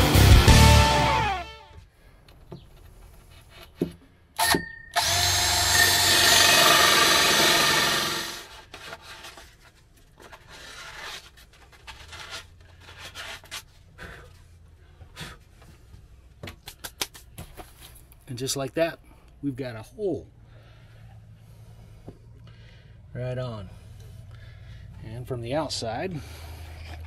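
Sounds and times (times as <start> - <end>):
drill with hole saw cutting wood: 4.4 - 8.6.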